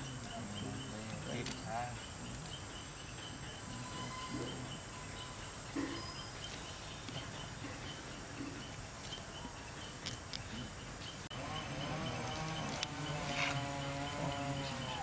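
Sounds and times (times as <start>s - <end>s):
insects chirping: 0.0s - 15.0s
wavering pitched call: 11.4s - 15.0s.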